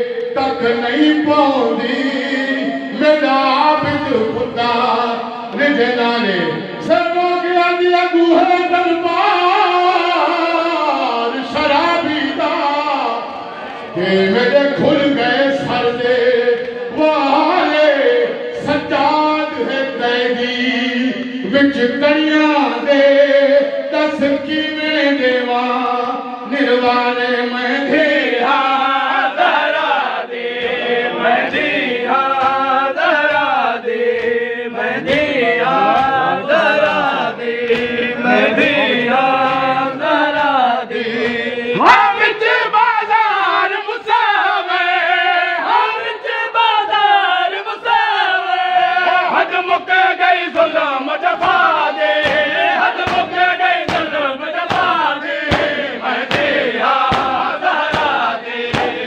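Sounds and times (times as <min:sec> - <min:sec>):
men chanting a lament: 0:00.0 - 0:59.0
hands beating chests: 0:30.4 - 0:41.5, 0:50.5 - 0:59.0.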